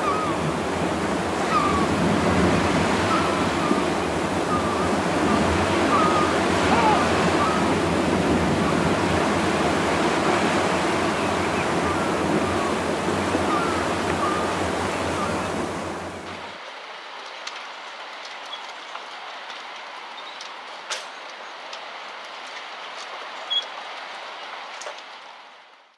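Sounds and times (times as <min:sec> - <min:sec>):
sea surf: 0:00.0 - 0:18.5
wind: 0:00.0 - 0:25.9.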